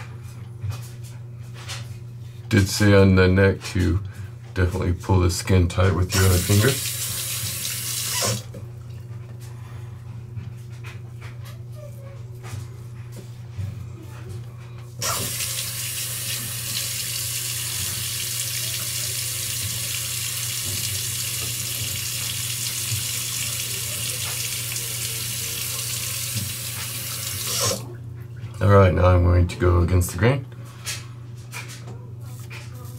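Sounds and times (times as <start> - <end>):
tap water running into sink: 6.1 - 8.5, 15.0 - 27.8.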